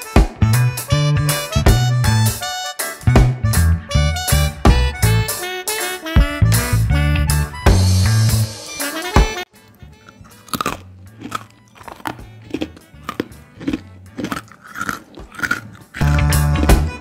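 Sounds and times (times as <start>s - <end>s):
background music: 0.0s - 17.0s
biscuit crunching while chewed: 9.5s - 16.4s.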